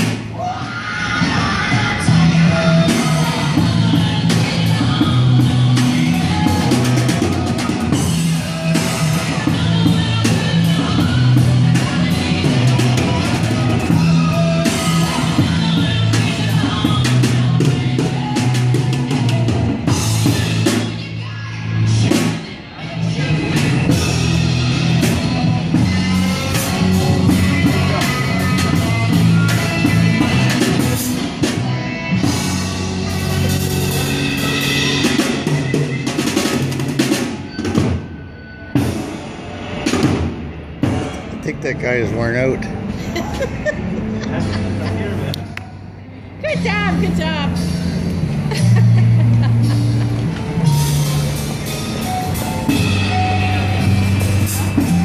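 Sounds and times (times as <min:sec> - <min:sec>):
drum kit playing: 0:00.0 - 0:00.3, 0:01.6 - 0:21.1, 0:23.3 - 0:38.0, 0:46.5 - 0:55.0
low bass notes: 0:40.9 - 0:55.0.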